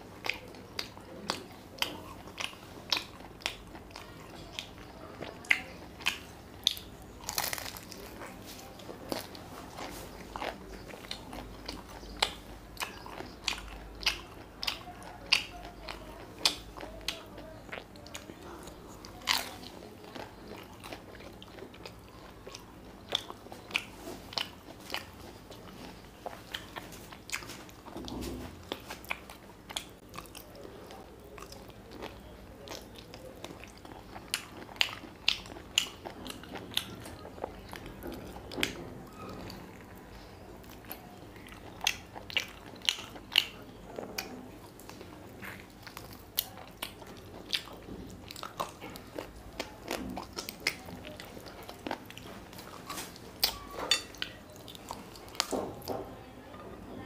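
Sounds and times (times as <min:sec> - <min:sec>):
man chewing food: 0:00.0 - 0:56.1.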